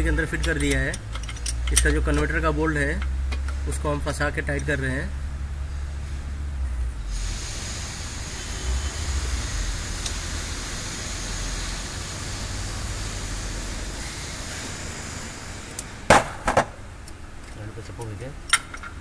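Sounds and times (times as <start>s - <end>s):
steady hiss: 7.0s - 16.1s.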